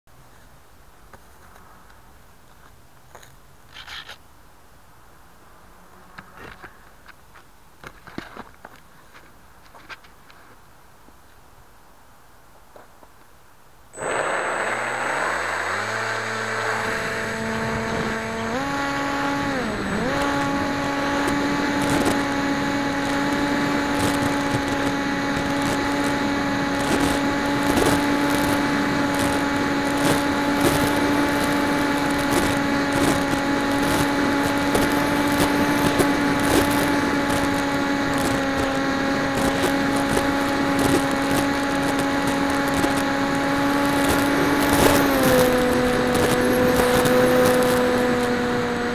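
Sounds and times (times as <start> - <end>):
crackling wind noise: 0.3 - 48.9
electric motor and propeller whine: 14.0 - 48.9.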